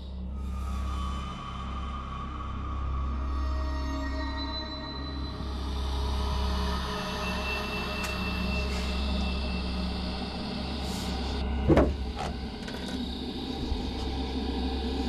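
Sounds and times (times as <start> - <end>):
loud clunk: 11.6 - 13.0.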